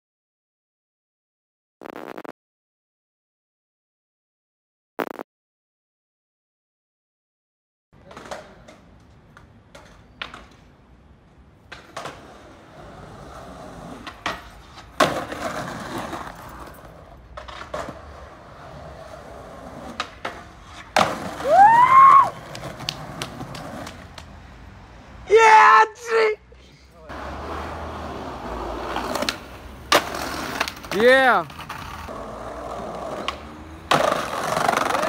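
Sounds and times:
skateboard clacks on concrete: 0:08.0 - 0:10.8, 0:11.6 - 0:21.4, 0:22.4 - 0:24.3, 0:28.6 - 0:35.0
skateboard wheels rolling: 0:08.0 - 0:24.4, 0:27.1 - 0:35.0
skateboard squeal: 0:20.6 - 0:23.8.

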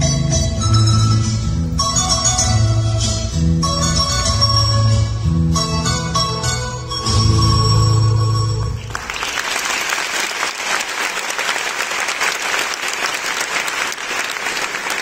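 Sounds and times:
audience applauding: 0:08.8 - 0:15.0.

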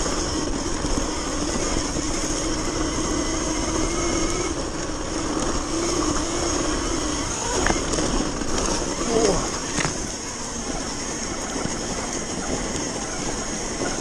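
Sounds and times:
electric motor whine: 0:00.0 - 0:14.0
rushing wind: 0:00.0 - 0:14.0
tyre noise: 0:00.0 - 0:14.0.

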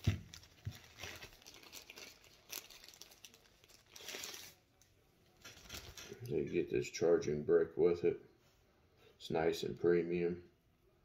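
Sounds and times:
plastic wrapping crinkling: 0:00.0 - 0:06.2.

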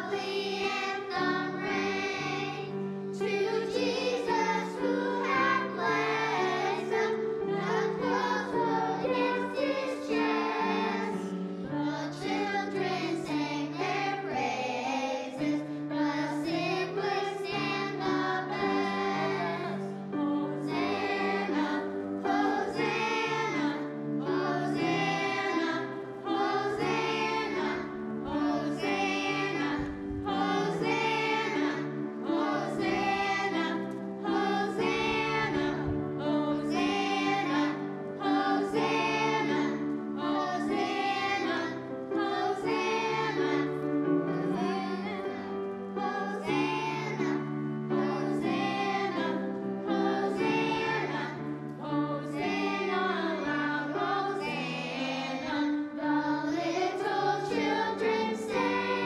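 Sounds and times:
children's choir singing a hymn: 0:00.0 - 0:59.0
piano chords: 0:00.0 - 0:59.0.

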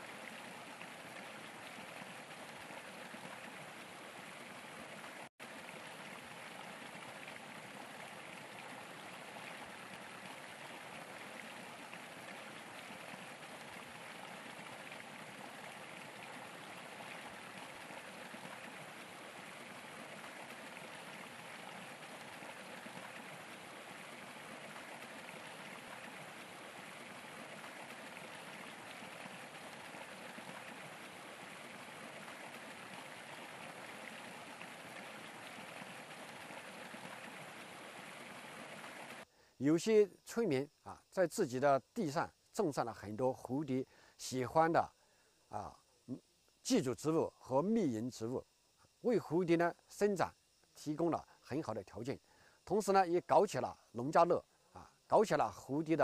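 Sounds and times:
stream water rushing: 0:00.0 - 0:39.2.

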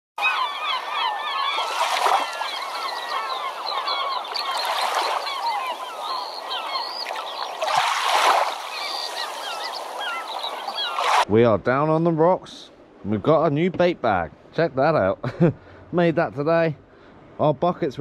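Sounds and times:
flock of birds calling: 0:00.2 - 0:11.3.

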